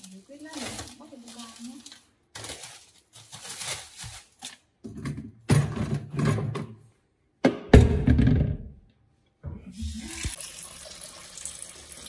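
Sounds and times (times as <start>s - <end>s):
plastic bag rustling: 0.0s - 4.8s.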